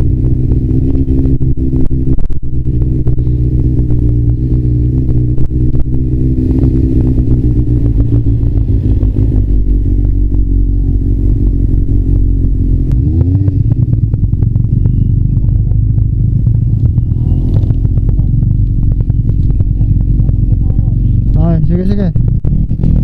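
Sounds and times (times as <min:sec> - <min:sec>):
motorcycle engine running: 0:00.0 - 0:23.0
short crackles: 0:12.8 - 0:23.0.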